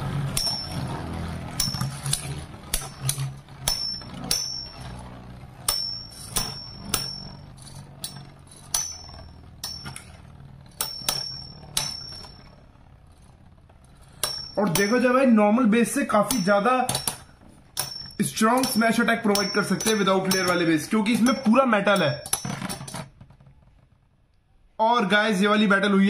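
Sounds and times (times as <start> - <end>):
spinning tops whirring: 0.0 - 24.1
metal tops clashing: 0.3 - 12.5, 14.0 - 15.2, 16.1 - 23.1.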